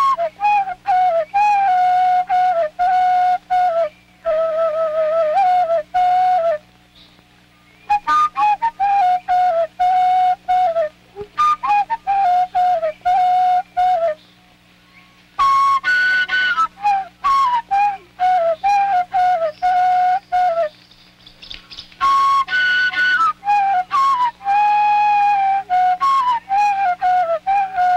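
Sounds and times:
flute-like wind instrument melody: 0.0 - 6.8, 7.9 - 14.2, 15.4 - 20.8, 22.0 - 27.9
low steady hum: 0.0 - 27.9.

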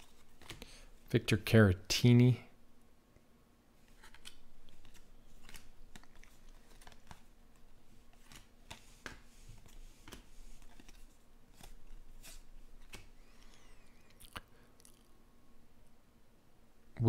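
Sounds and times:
cards being flipped: 0.0 - 0.8, 3.8 - 14.4.

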